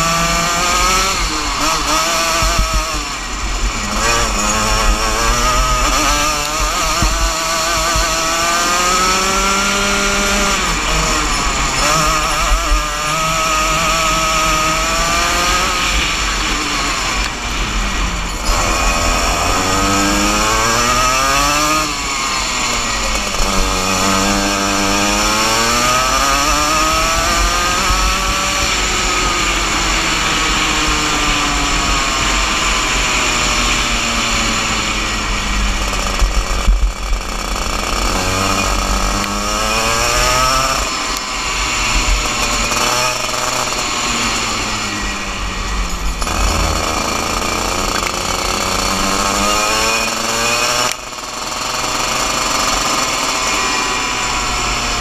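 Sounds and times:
wind noise on microphone: 0:00.0 - 0:43.3
kart engine buzzing: 0:00.0 - 0:55.0.

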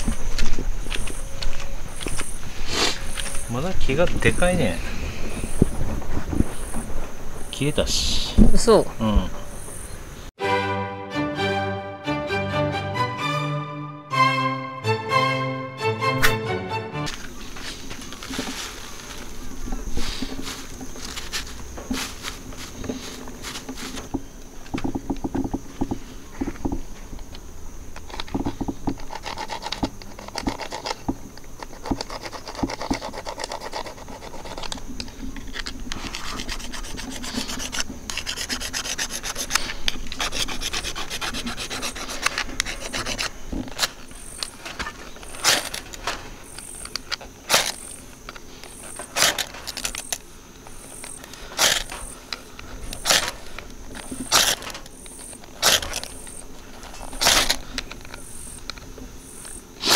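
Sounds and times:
sharp striker strikes: 0:16.1 - 0:16.5
striker rasping on fire-starter rod: 0:28.1 - 0:48.0.

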